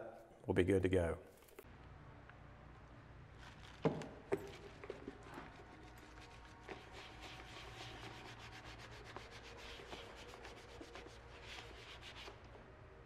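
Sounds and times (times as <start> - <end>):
rubbing strokes on leather shoe: 5.4 - 12.4.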